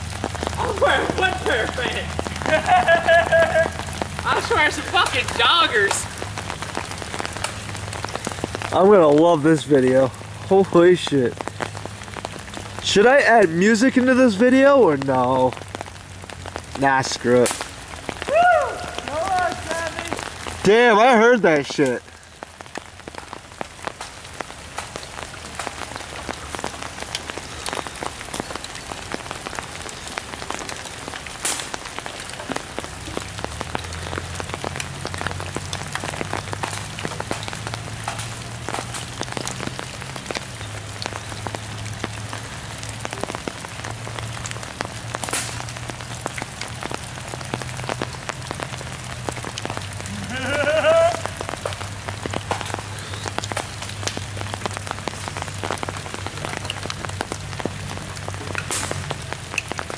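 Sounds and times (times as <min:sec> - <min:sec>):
rain pattering: 0:00.0 - 0:59.9
person shouting: 0:18.3 - 0:20.2, 0:50.1 - 0:51.4.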